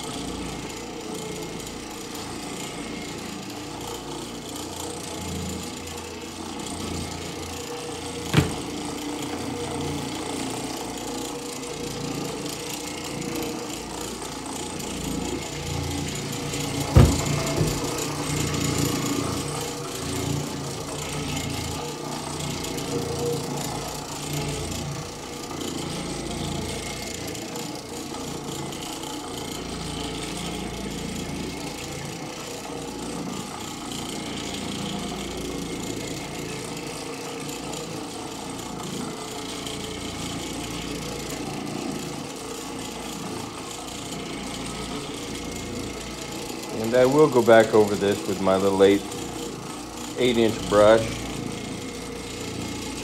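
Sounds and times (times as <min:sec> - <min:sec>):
floor machine scrubbing carpet: 0:00.0 - 0:53.0.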